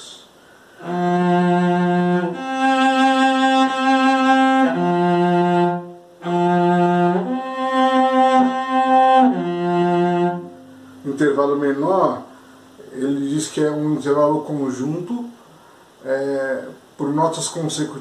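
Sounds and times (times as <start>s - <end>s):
cello bowed notes: 0.8s - 15.0s.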